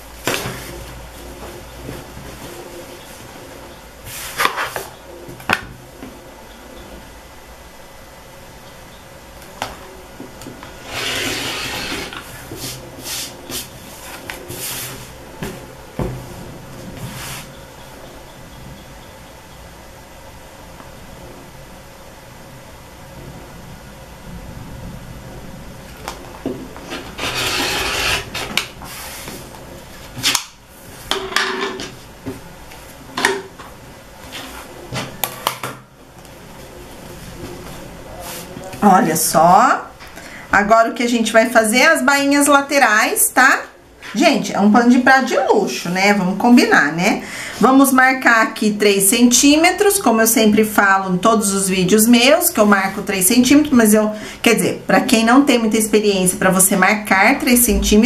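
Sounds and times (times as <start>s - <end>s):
rotary cutter cutting fabric: 10.8s - 12.2s, 27.0s - 28.6s
fabric and ruler scraping: 10.8s - 15.1s, 26.9s - 29.3s.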